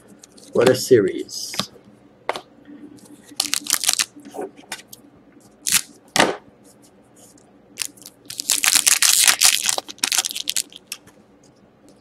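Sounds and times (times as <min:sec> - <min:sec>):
small crackles of cards: 0:03.3 - 0:04.2, 0:07.3 - 0:11.6
foil wrapper tearing and crinkling: 0:03.4 - 0:04.2, 0:05.6 - 0:05.9, 0:07.8 - 0:11.0.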